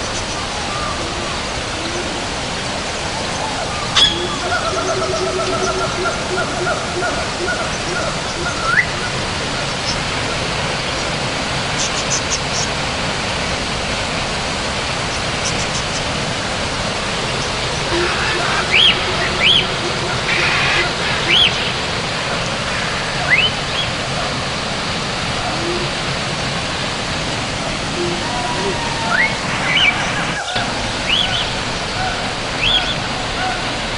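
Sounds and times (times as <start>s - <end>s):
waterfall rushing: 0.0s - 33.9s
short rising whistle-like calls: 4.0s - 4.9s, 17.9s - 21.8s, 28.0s - 30.5s.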